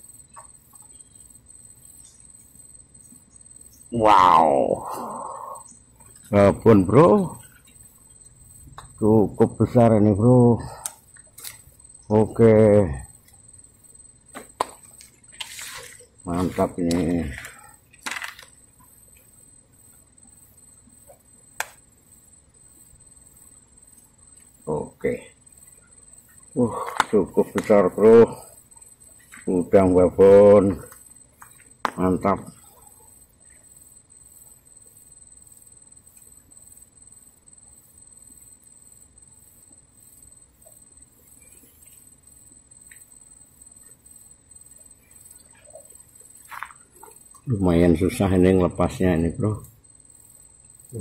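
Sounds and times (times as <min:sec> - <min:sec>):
high-pitched insect drone: 0:00.0 - 0:51.0
faint clicks: 0:10.8 - 0:11.6.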